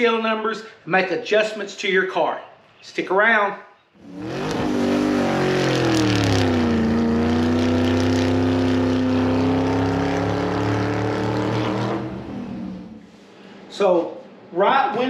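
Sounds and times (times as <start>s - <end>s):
race car engine running hard: 4.0s - 13.0s.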